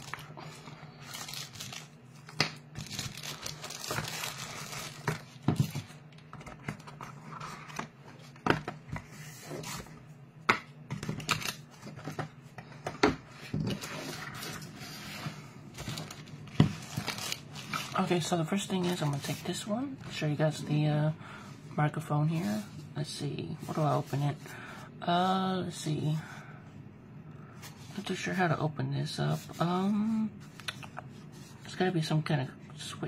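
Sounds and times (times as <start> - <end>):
cardboard packaging rustling: 0.0 - 9.9, 13.6 - 20.2
low steady hum: 0.0 - 33.0
plastic film crinkling: 1.0 - 5.9, 15.8 - 19.6.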